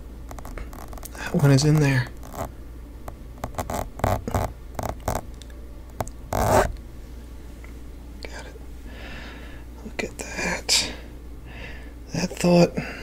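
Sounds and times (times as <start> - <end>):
fingertips rubbing together: 0.3 - 2.5, 3.4 - 5.2, 6.0 - 6.7.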